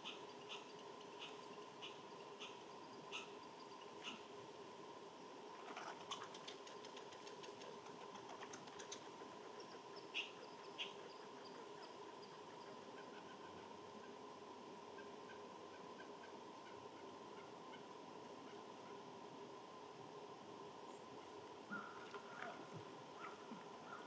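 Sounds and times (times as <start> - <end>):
animal clicking rattle: 6.0 - 9.1.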